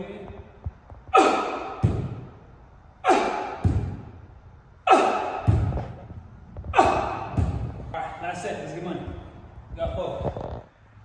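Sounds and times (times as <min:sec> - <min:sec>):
bare feet thudding on landing: 0:03.1 - 0:04.1, 0:04.9 - 0:07.9.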